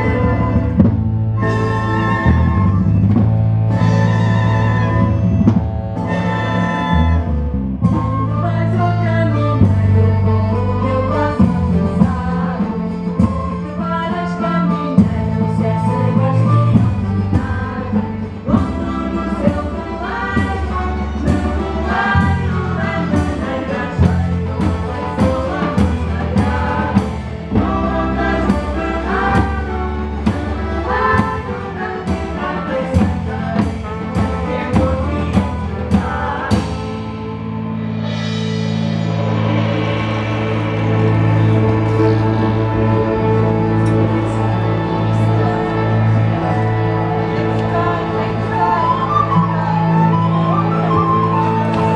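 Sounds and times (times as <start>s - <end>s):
folk ensemble playing: 0.0s - 51.9s
voices singing together: 8.3s - 37.1s, 39.0s - 51.9s
steady drum beat: 16.7s - 37.3s, 37.9s - 46.4s.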